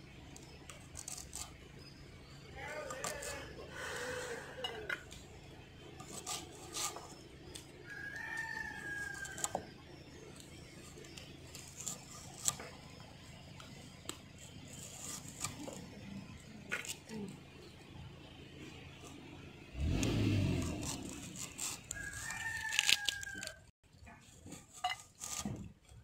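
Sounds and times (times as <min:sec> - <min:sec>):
rooster crowing: 0:07.8 - 0:09.7, 0:21.9 - 0:23.7.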